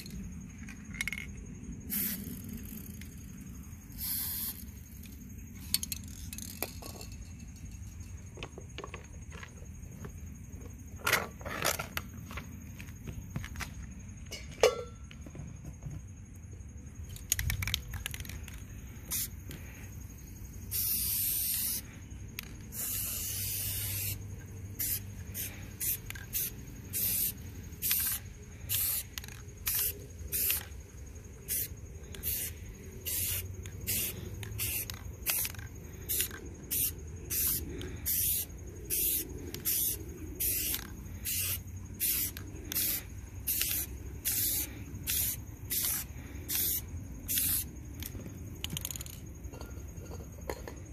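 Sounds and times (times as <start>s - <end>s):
aerosol spray can hissing: 4.0s - 4.7s, 20.7s - 21.9s, 22.7s - 24.2s, 24.8s - 30.7s, 31.5s - 47.7s.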